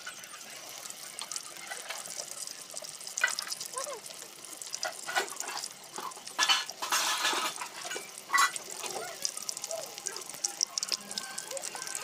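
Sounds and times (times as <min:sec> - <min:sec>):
food frying in hot oil: 0:00.0 - 0:12.0
metal utensils clinking: 0:04.8 - 0:08.9.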